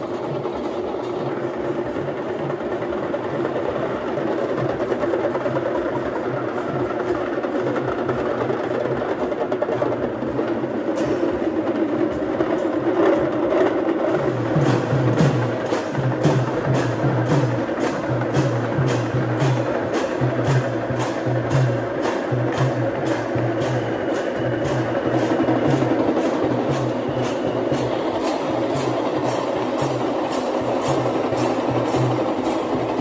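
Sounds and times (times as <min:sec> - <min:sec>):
continuous din: 0:00.0 - 0:33.0
low drum strokes: 0:14.1 - 0:33.0.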